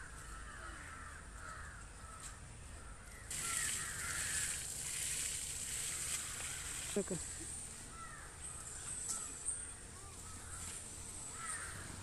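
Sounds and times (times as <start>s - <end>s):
crows cawing: 0.0s - 4.8s, 5.7s - 12.0s
even hiss: 3.3s - 8.0s.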